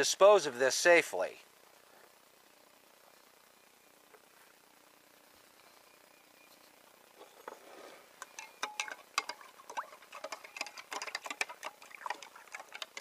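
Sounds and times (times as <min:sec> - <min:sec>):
clicks and taps in glass jar: 0:08.3 - 0:13.0.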